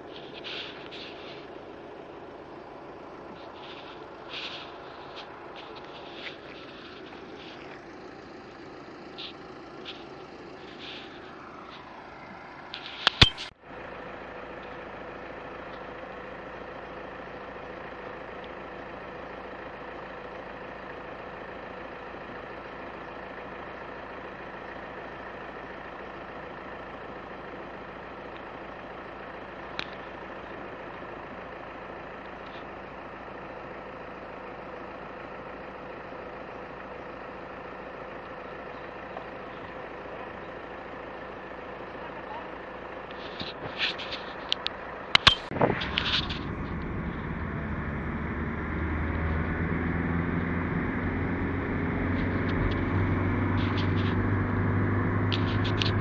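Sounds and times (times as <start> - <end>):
vehicle engine idling: 0.0 - 56.0
single click: 13.0 - 13.5, 45.2 - 46.0.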